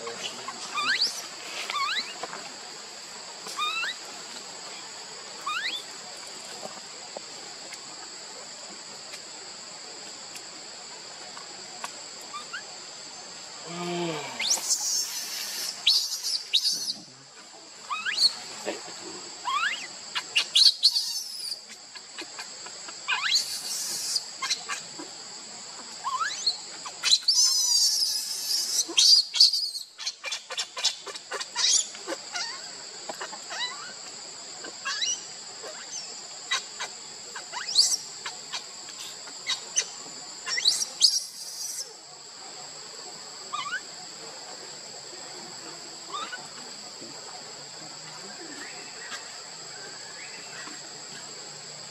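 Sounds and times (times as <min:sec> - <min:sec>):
high insect drone: 0:00.0 - 0:51.9
infant monkey squealing and screaming: 0:00.2 - 0:02.2, 0:03.5 - 0:04.0, 0:05.4 - 0:05.9, 0:12.3 - 0:12.7, 0:14.4 - 0:17.1, 0:17.9 - 0:18.4, 0:19.4 - 0:22.5, 0:23.1 - 0:25.0, 0:26.0 - 0:34.0, 0:34.6 - 0:42.0, 0:43.5 - 0:43.9, 0:46.1 - 0:46.5.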